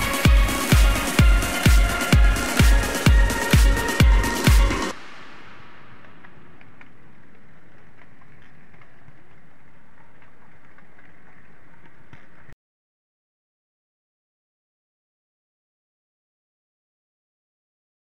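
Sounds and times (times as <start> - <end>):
faint clicks: 5.9 - 12.6.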